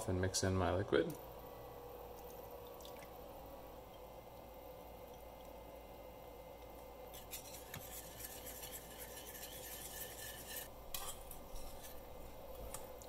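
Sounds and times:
utensil scraping a steel pan: 7.2 - 12.0.

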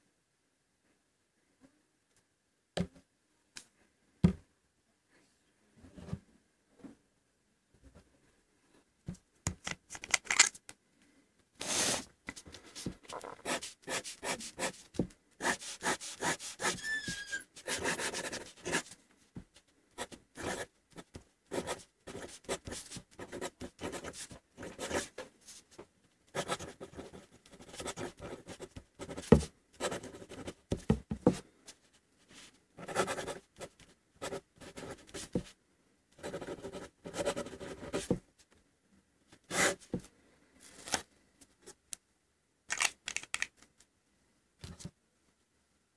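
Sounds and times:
pen nib scratching on paper: 15.4 - 18.8, 26.4 - 30.6.

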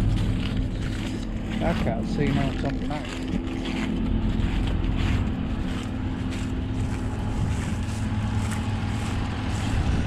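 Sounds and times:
combine harvester engine hum: 0.0 - 10.0.

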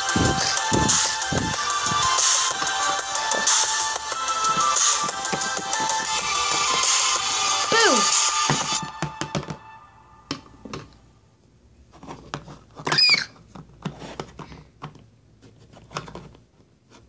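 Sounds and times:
short high squeak: 12.9 - 13.4.

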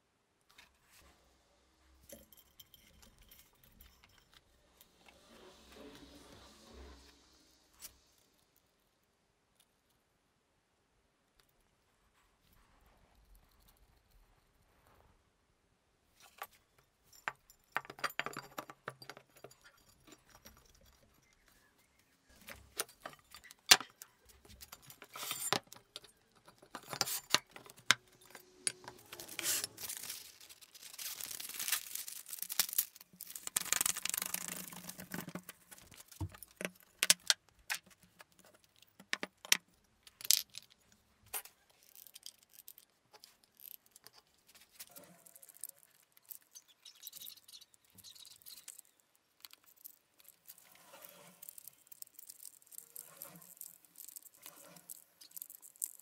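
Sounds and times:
metal clinks and knocks: 2.0 - 4.6, 16.2 - 21.6, 22.3 - 33.4
plastic film rustling: 26.6 - 36.6.

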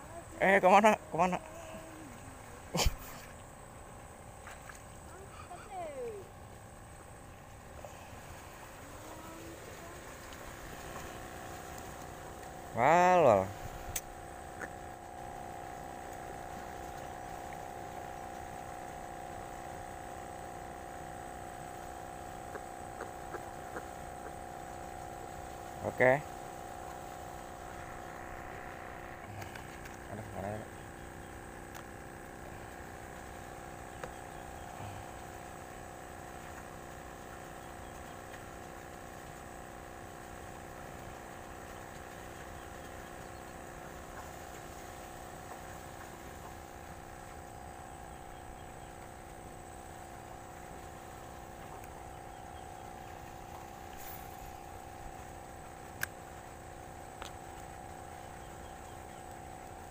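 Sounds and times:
aerator pump humming: 0.0 - 59.9
faint ticks: 9.4 - 12.7, 13.6 - 59.9
faint clicks: 30.8 - 33.3, 55.2 - 59.9.

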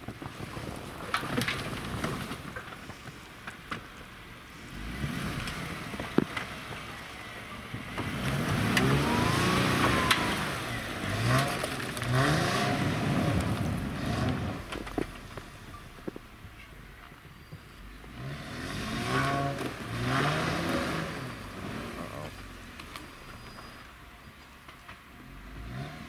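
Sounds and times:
off-road vehicle engine revving: 4.4 - 16.8, 17.6 - 24.0, 25.1 - 26.0.

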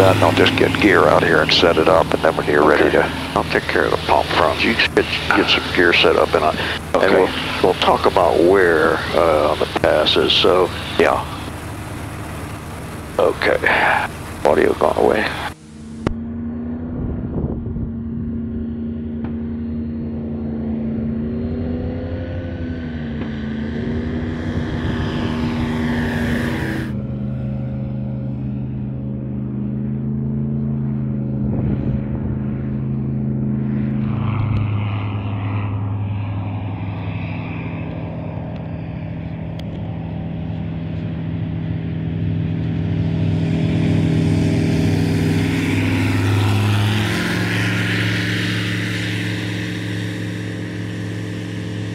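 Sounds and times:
light aircraft engine droning: 0.0 - 51.9.

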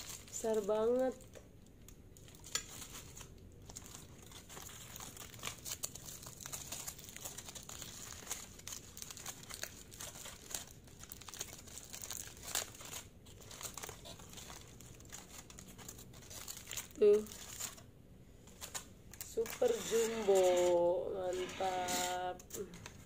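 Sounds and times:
aluminium foil crinkling: 0.0 - 23.0.

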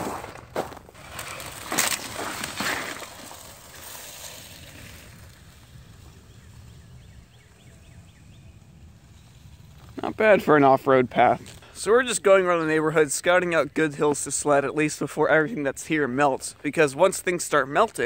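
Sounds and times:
crunching on icy snow: 0.0 - 6.9
sled sliding on snow: 0.0 - 11.6.

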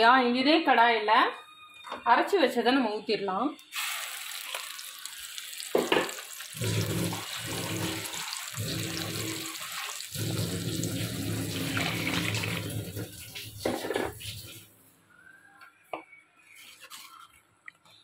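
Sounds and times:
water splashing into hot oil: 3.7 - 14.6.

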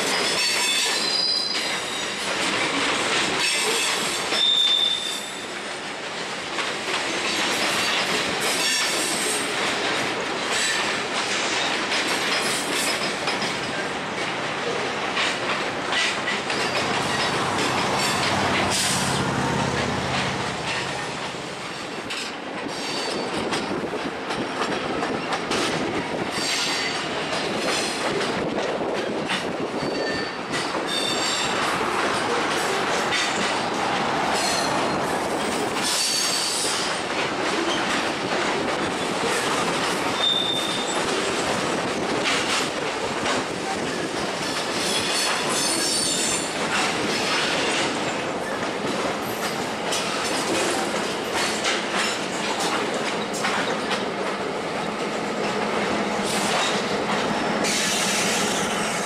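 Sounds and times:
train wheels rumbling on rail: 0.0 - 59.0
high-pitched wheel squeals: 0.4 - 2.1, 4.4 - 5.5, 40.2 - 41.0
wheels clicking over rail joints: 5.7 - 59.0.

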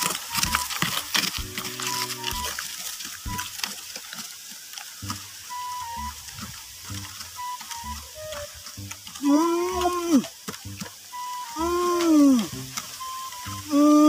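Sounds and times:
loud pitched call: 11.2 - 14.0.

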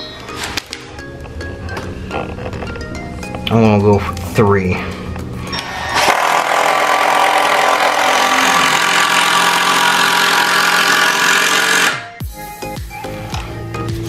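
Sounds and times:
impact driver driving screw: 5.6 - 12.0.

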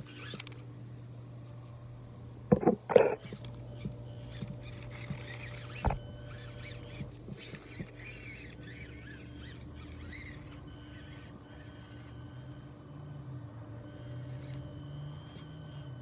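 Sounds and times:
small motor and drivetrain hum: 0.0 - 16.0
high squeaky chirps: 2.6 - 12.4.

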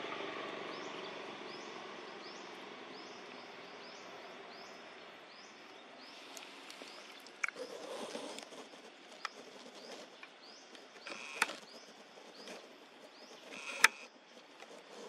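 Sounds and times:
brief rustle: 6.2 - 15.0
sharp clicks: 10.2 - 12.6, 13.3 - 14.1.

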